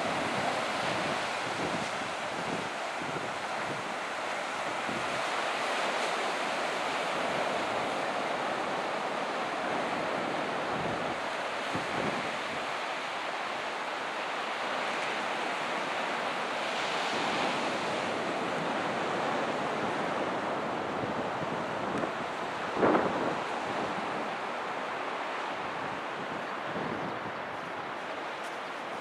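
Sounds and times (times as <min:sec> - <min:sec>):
wind buffeting microphone: 0:00.0 - 0:04.0, 0:17.1 - 0:29.0
waves breaking on beach: 0:00.0 - 0:29.0.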